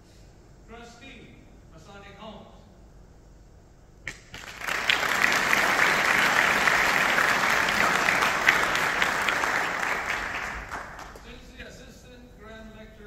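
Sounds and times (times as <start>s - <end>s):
audience applauding: 4.1s - 11.3s.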